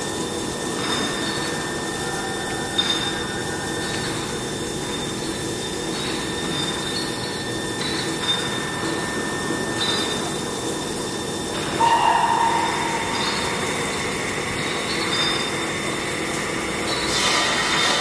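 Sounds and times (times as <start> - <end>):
milling machine spindle whine: 0.0 - 18.0
cutter squealing in metal: 11.7 - 15.6.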